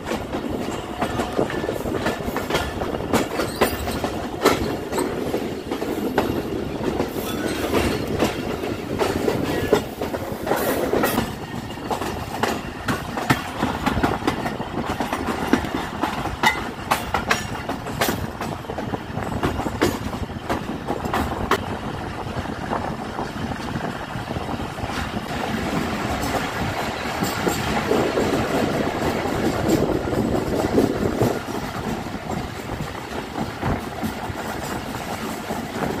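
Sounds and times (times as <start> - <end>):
train wheels rumbling on rail: 0.0 - 36.0.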